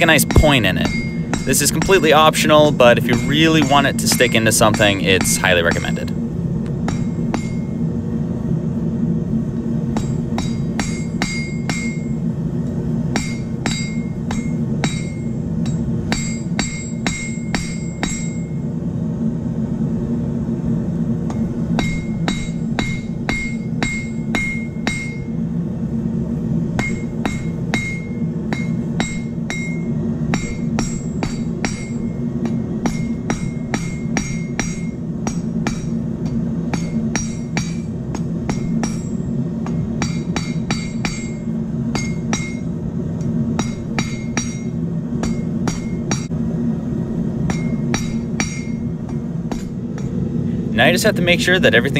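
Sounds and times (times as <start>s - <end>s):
steady low hum: 0.0s - 51.9s
hammer ringing on anvil: 0.2s - 2.1s, 3.1s - 6.1s, 6.9s - 7.7s, 10.0s - 12.1s, 13.1s - 18.6s, 21.8s - 25.3s, 26.8s - 37.9s, 38.5s - 42.7s, 43.6s - 46.3s, 47.5s - 50.1s.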